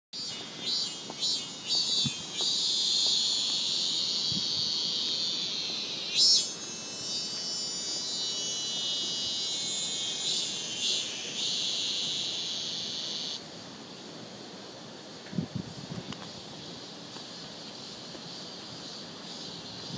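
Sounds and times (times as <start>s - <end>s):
high-pitched buzzing chirr: 0.2s - 13.4s.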